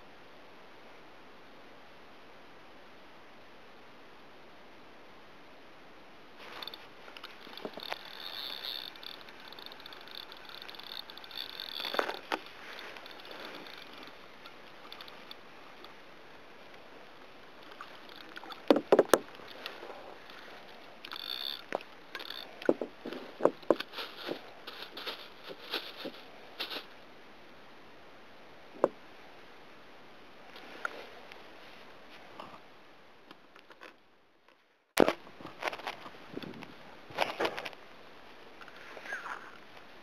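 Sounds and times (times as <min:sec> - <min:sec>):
fishing reel ticking: 0:06.5 - 0:16.0, 0:17.6 - 0:26.8.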